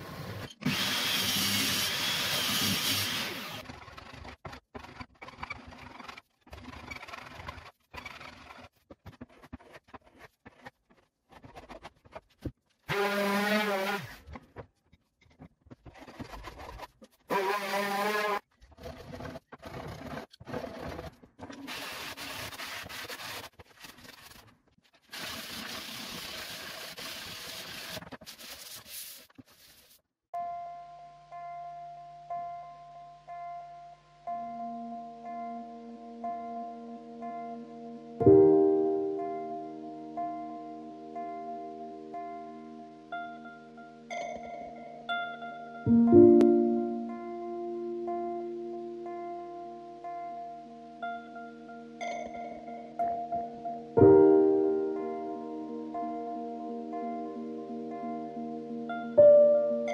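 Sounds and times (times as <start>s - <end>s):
pull saw cutting wood: 0.3s - 5.0s, 12.9s - 14.2s, 17.3s - 23.4s
hand plane scraping wood: 17.9s - 24.4s
sandpaper rasping on wood: 21.7s - 24.4s, 25.1s - 30.0s.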